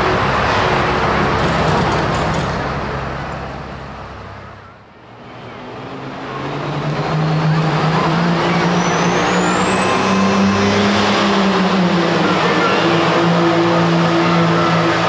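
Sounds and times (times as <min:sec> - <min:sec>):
tractor engine at full throttle: 0:06.1 - 0:15.0
high whistle rising in pitch: 0:07.4 - 0:15.0.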